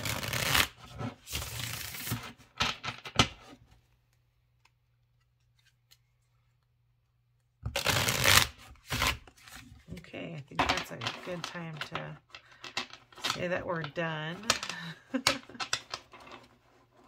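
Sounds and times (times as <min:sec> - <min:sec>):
card deck shuffling: 0:00.0 - 0:02.4.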